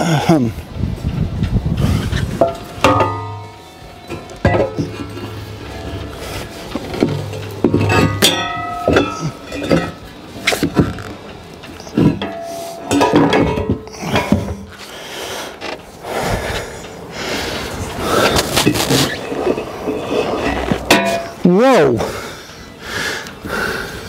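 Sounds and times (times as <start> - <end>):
heavy breathing: 13.8 - 18.6, 22.0 - 24.0.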